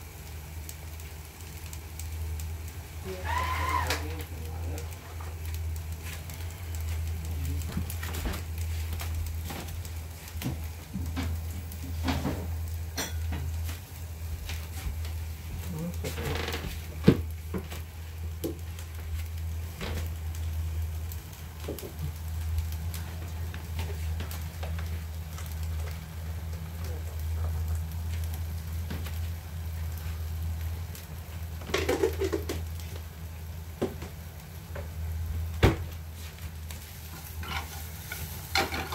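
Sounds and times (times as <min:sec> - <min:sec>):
utensils clinking on cookware: 0:13.0 - 0:13.4, 0:38.6 - 0:38.9.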